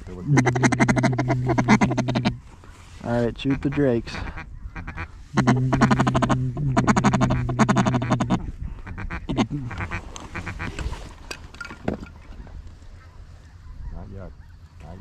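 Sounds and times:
duck call quacking: 0:00.3 - 0:02.4, 0:03.4 - 0:10.7.

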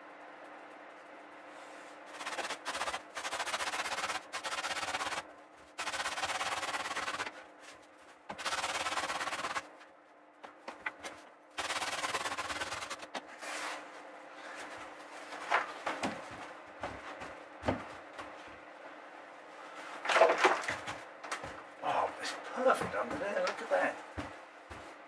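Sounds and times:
foam rubbing: 0:01.4 - 0:09.8, 0:11.6 - 0:13.9.

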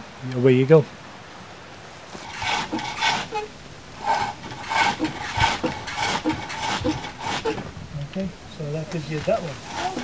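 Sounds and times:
chisel cutting spinning wood: 0:02.2 - 0:07.7, 0:09.2 - 0:10.0.

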